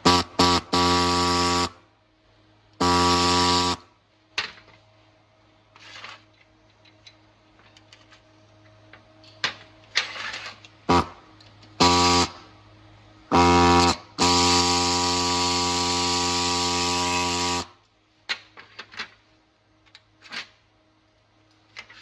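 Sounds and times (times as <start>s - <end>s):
air saw cutting metal: 0.0s - 1.8s, 2.8s - 3.8s, 11.8s - 12.4s, 13.3s - 17.7s.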